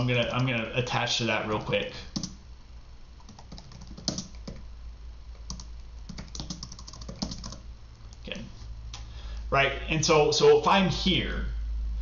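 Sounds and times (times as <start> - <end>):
typing on computer keyboard: 1.6 - 2.4, 3.2 - 4.6, 5.4 - 8.2.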